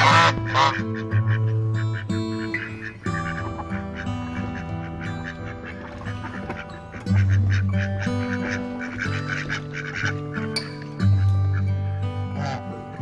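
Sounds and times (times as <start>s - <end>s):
background music with bass: 0.0s - 13.0s
ducks quacking: 0.0s - 13.0s.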